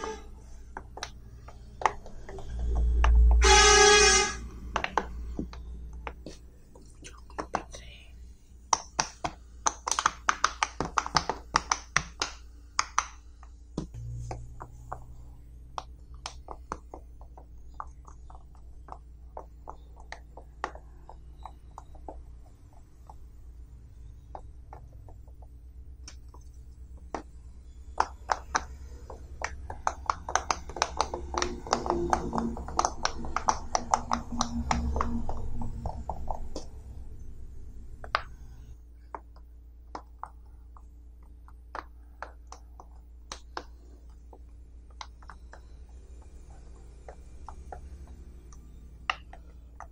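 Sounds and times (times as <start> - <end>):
pop-it fidget toy popping: 27.0 - 36.8.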